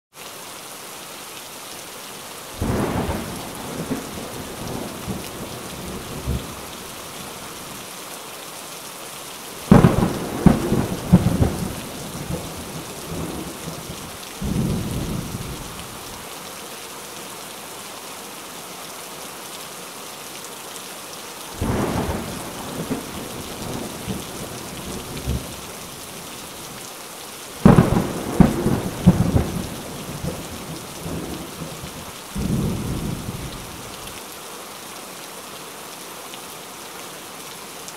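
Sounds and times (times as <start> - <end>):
steady rain hiss: 0.2 - 37.9
thunder rolling: 9.7 - 13.8, 14.4 - 15.7, 21.6 - 25.6, 27.6 - 31.8.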